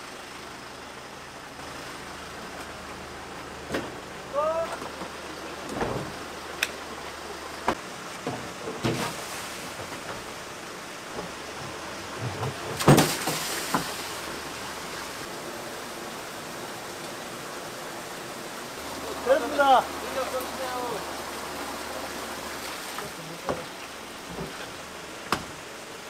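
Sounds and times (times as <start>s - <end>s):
water pouring from hose: 8.8s - 25.3s.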